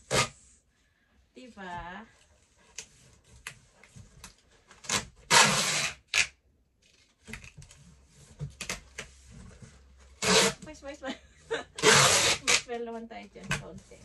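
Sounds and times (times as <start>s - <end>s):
tape unrolling rasp: 0.0s - 0.6s, 2.6s - 6.4s, 10.1s - 10.7s, 11.8s - 12.8s.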